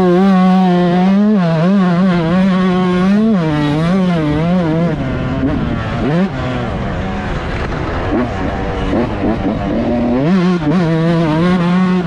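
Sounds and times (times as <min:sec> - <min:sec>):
two-stroke motorcycle engine revving: 0:00.0 - 0:12.0.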